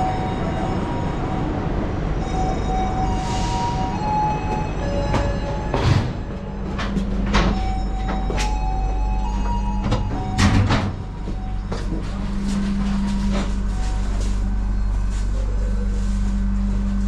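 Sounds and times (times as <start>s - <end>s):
low machinery hum: 0.0s - 17.0s
sliding doors knocking and clattering: 4.5s - 12.2s.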